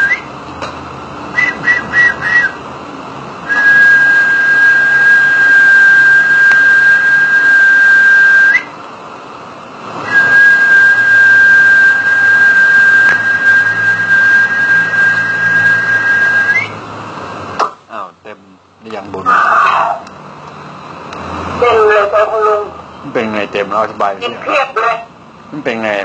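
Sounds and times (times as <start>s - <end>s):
person whistling high note: 1.4s - 2.6s, 10.0s - 16.8s.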